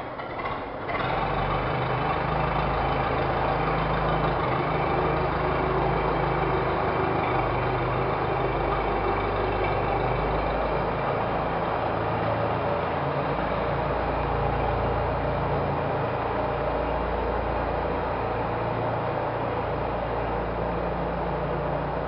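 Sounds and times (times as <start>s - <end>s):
large engine droning: 0.0s - 22.0s.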